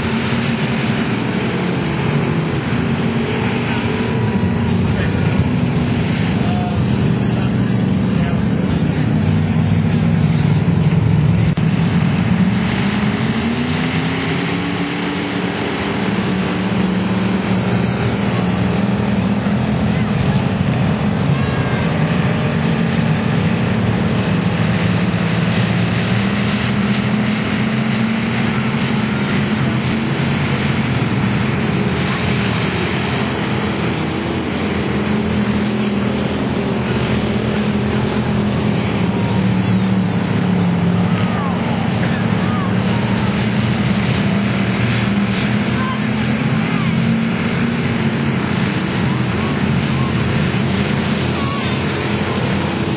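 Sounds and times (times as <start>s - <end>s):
race car engines droning: 0.0s - 52.9s.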